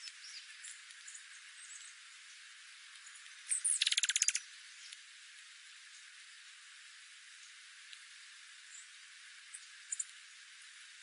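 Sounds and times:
faint steady hiss: 0.0s - 11.0s
songbird chip notes: 3.5s - 5.0s
bird rattling trill: 3.6s - 4.4s.

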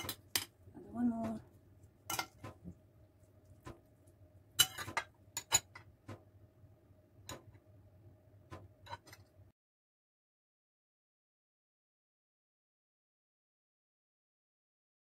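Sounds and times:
faint steady hum: 0.0s - 9.5s.

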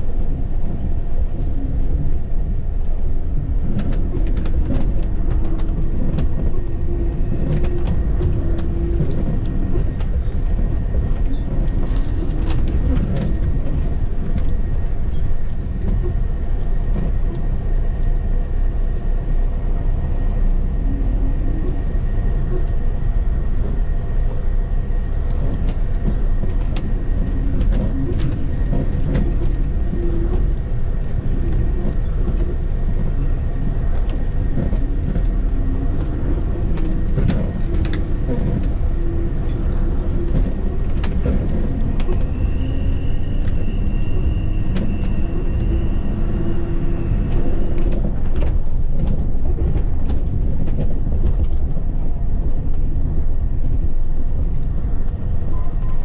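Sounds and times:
bus engine drone and road rumble: 0.0s - 56.0s
body rattles and knocks: 25.3s - 35.4s, 47.4s - 54.6s.

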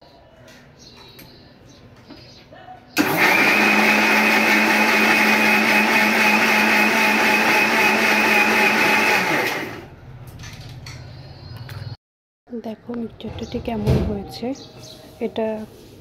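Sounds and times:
mixer grinder motor whirring: 3.0s - 9.9s.

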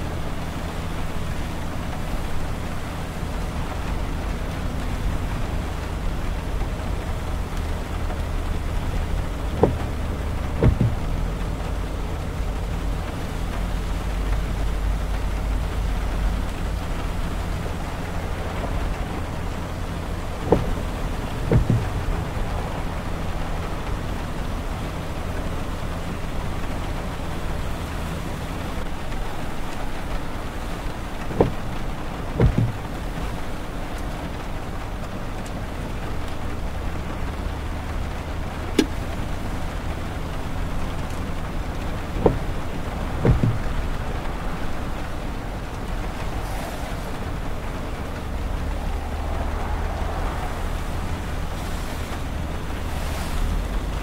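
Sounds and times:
rain on windshield: 0.0s - 54.0s
tyre and road noise: 0.0s - 54.0s
windshield wiper knocks: 6.3s - 12.7s, 15.1s - 26.3s, 28.6s - 34.4s, 38.4s - 45.2s.

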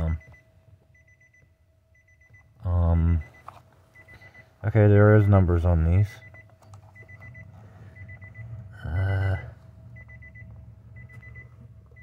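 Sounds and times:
electronic warning beeps: 0.0s - 4.6s, 6.0s - 12.0s
faint steady tone: 0.0s - 12.0s
person humming: 8.7s - 9.6s.

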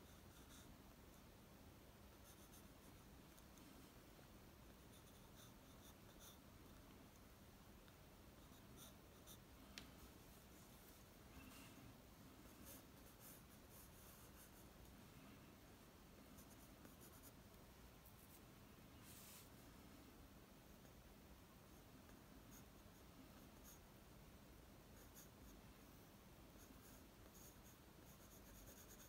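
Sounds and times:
pencil scratching on paper: 0.0s - 1.2s, 2.2s - 3.5s, 4.8s - 6.4s, 8.4s - 9.4s, 12.5s - 14.7s, 16.4s - 17.4s, 26.6s - 29.0s
faint steady hum: 0.0s - 29.0s.

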